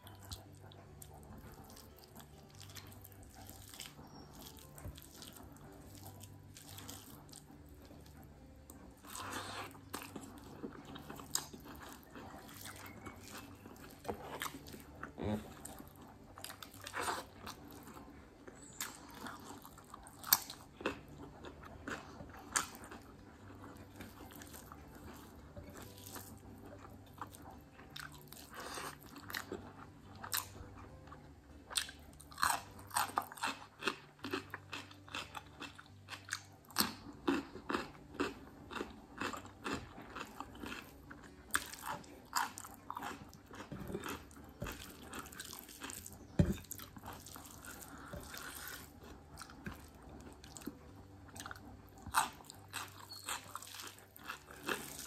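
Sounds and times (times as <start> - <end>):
chewing with mouth clicks: 0.0 - 55.0.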